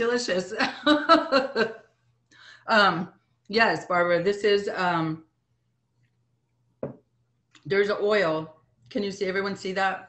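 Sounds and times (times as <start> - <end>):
woman speaking: 0.0 - 1.7, 2.5 - 5.2, 7.7 - 10.0.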